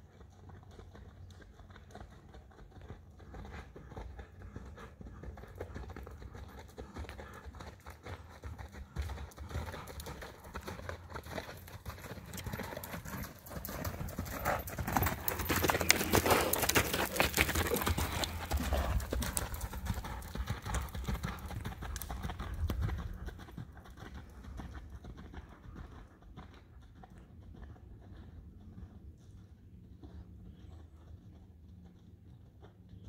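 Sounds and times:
horse hoofbeats on sand: 0:00.0 - 0:33.0.

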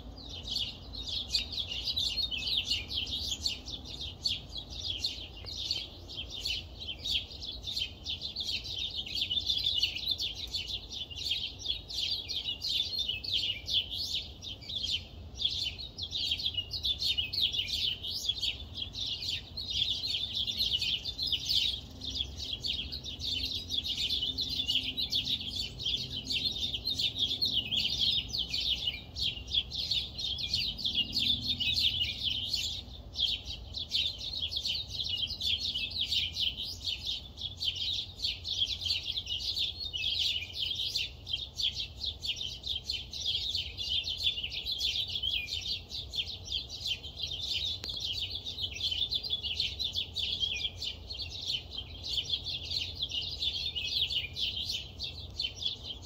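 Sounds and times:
birds chirping: 0:00.0 - 0:56.0.

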